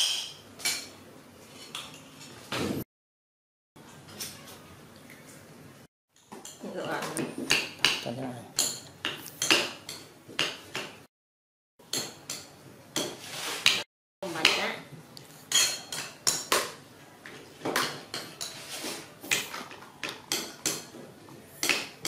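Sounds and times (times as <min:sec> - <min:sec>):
metal utensils clinking on dishes: 0:15.5 - 0:16.7, 0:17.7 - 0:22.0.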